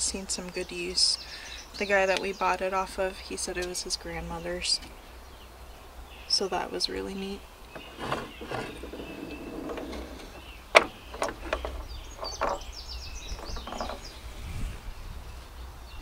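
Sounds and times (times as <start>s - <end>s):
birds chirping: 0.1s - 16.0s
sewing machine knocks and clatter: 7.8s - 12.7s.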